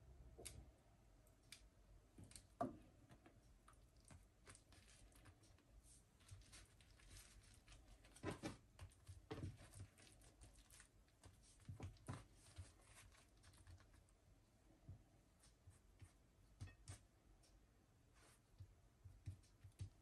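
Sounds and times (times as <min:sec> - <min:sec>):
paper wrapper rustling: 0:06.2 - 0:09.0, 0:09.6 - 0:11.4.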